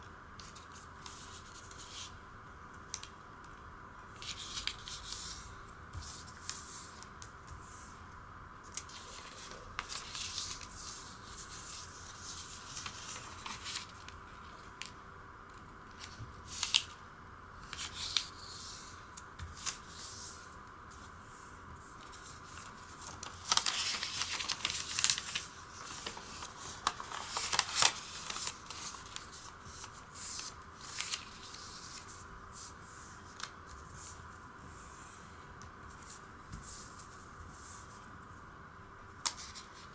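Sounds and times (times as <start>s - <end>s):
paper rustling and crinkling: 8.7s - 15.0s, 15.9s - 17.0s, 22.0s - 32.2s.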